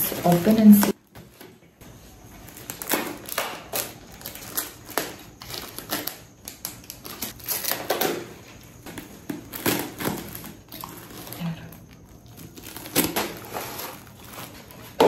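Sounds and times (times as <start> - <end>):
tool scraping packing tape: 2.5 - 11.4, 12.4 - 15.0.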